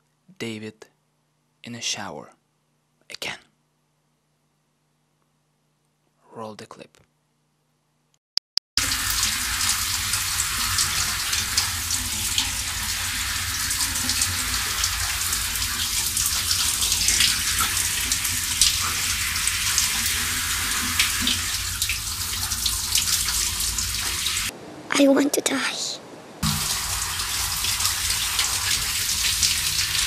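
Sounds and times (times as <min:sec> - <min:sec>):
shower water spraying: 0:08.8 - 0:24.5, 0:26.4 - 0:30.0.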